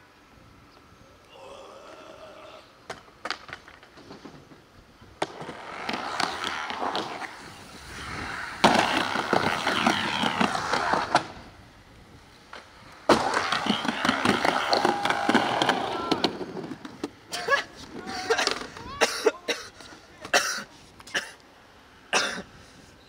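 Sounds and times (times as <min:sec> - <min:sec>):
skateboard wheels rolling on wood: 0:01.8 - 0:21.2
skateboard clicks: 0:02.9 - 0:04.4, 0:05.2 - 0:11.4, 0:12.4 - 0:18.9.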